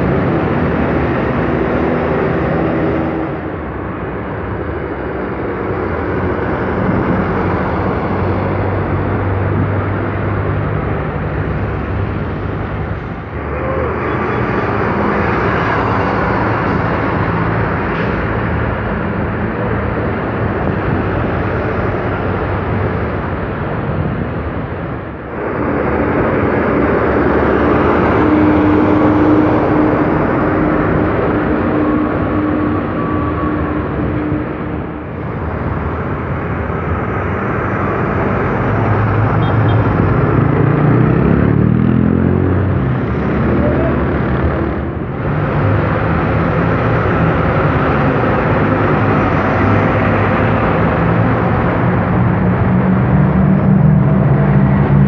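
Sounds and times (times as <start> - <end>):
bus engine passing: 0.0 - 55.0
cars and tyres noise: 0.0 - 55.0.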